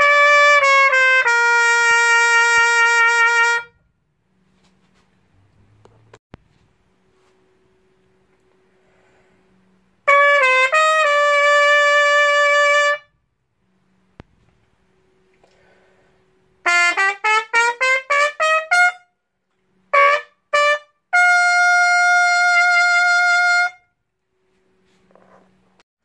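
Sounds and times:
muted trumpet playing: 0.0s - 3.8s, 10.0s - 13.2s, 16.6s - 19.2s, 19.9s - 24.0s.

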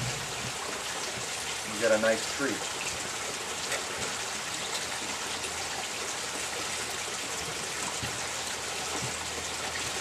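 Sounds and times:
water feature trickling: 0.0s - 10.0s.

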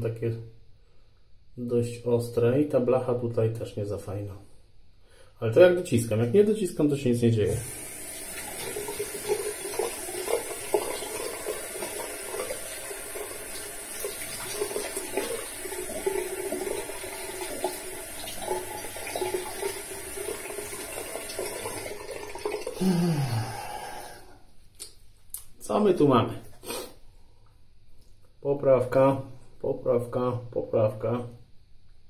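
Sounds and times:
tap water splashing into sink: 7.6s - 22.8s.

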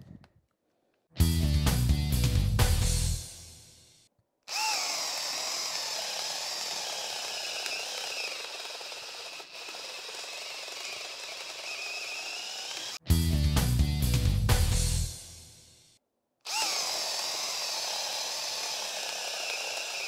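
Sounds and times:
cordless drill whining under load: 4.5s - 13.0s, 16.5s - 20.0s.

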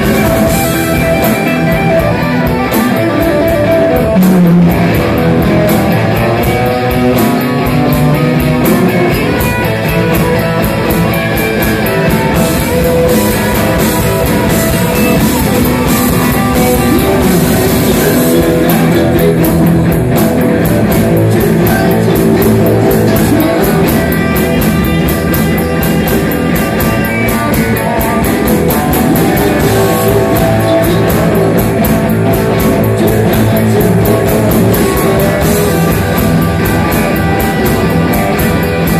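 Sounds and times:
bass guitar: 0.0s - 38.9s
drum kit beat: 0.0s - 38.9s
electric guitar: 0.0s - 38.9s
man singing: 15.6s - 24.7s, 27.0s - 36.2s.

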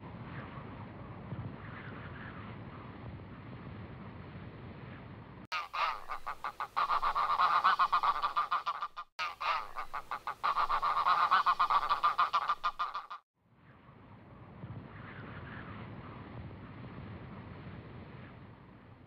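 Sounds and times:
geese honking: 5.5s - 13.2s.

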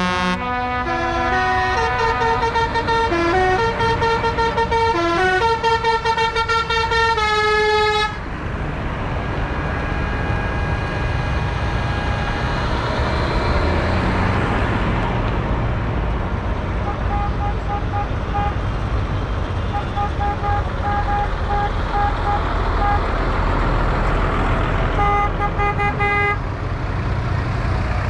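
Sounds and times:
musical horn playing a tune: 0.0s - 8.2s
tractor engines rumbling: 0.0s - 28.0s.

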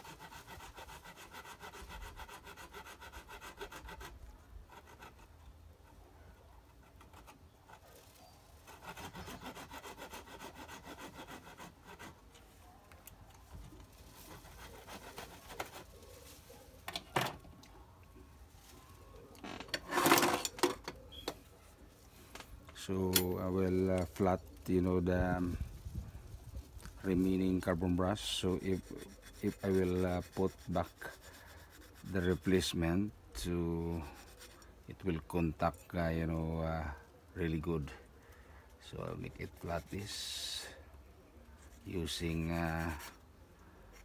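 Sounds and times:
hand tool scraping: 0.0s - 6.0s, 6.6s - 12.5s, 13.8s - 16.6s, 19.7s - 20.8s, 26.8s - 32.8s, 41.7s - 43.3s.

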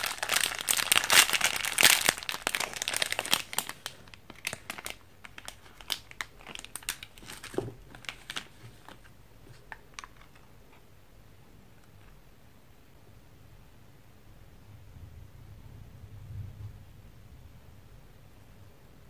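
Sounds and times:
plastic wrapper crinkling: 0.0s - 10.5s.

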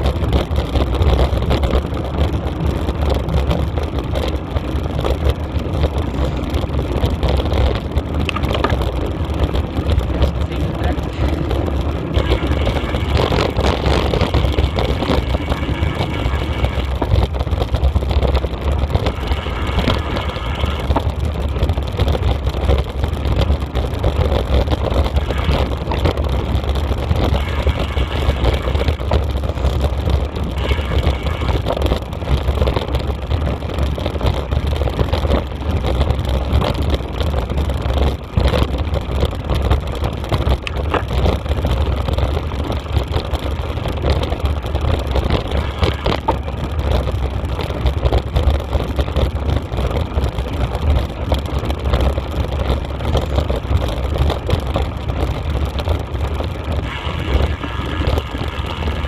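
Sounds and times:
wind buffeting microphone: 0.0s - 59.0s
thin high whine: 56.8s - 59.0s.

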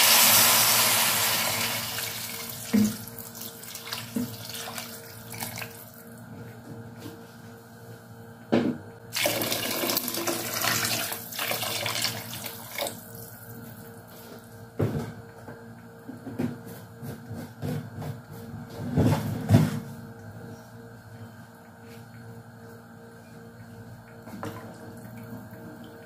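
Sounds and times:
water pouring into a pot: 0.0s - 2.6s, 9.1s - 12.9s.

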